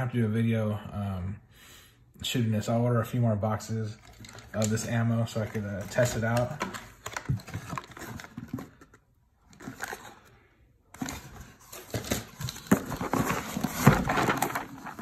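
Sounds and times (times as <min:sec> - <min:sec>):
cardboard rustling and scraping: 0:04.0 - 0:10.3, 0:10.9 - 0:15.0.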